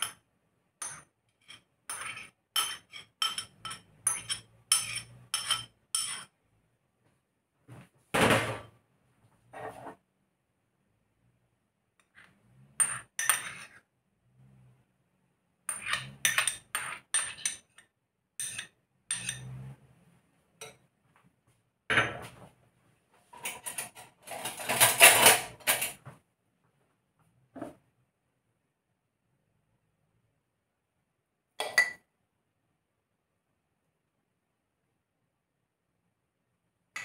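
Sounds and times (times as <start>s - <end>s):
spoon clinking and scraping bowls: 0.0s - 0.2s, 0.8s - 6.4s, 12.0s - 13.9s, 15.7s - 19.8s, 23.4s - 26.0s.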